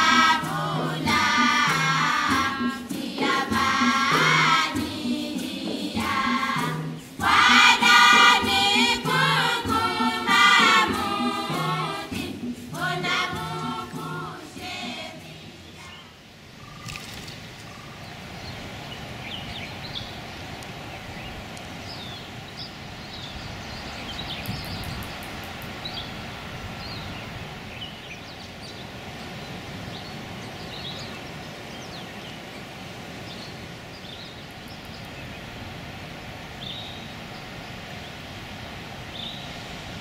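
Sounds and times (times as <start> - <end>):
steady rushing noise: 0.0 - 40.0
small birds chirping: 12.8 - 35.9, 36.5 - 40.0.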